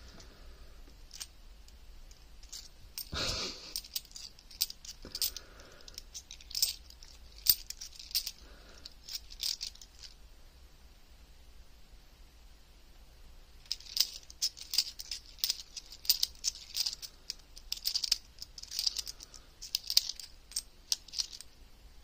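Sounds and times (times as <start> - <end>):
coins clicking and clinking: 1.1 - 1.3, 2.1 - 10.2, 13.6 - 21.5.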